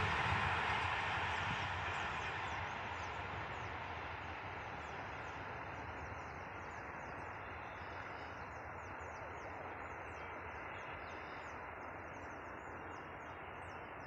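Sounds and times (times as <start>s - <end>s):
train rumble: 0.0s - 14.0s.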